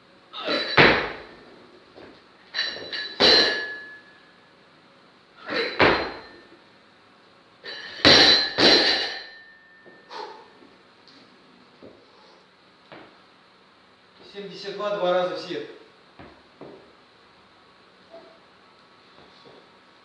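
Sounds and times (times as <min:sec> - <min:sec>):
barbell plates clanging on platform: 0:02.6 - 0:04.0
metallic ring of bar: 0:02.6 - 0:04.2, 0:07.7 - 0:10.1.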